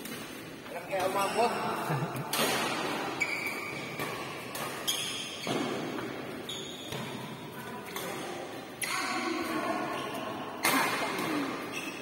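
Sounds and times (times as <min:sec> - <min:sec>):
shoes squeaking on floor: 0:00.7 - 0:01.8, 0:02.8 - 0:08.0, 0:08.9 - 0:10.5, 0:11.3 - 0:12.0
rackets striking shuttlecocks: 0:02.2 - 0:09.6.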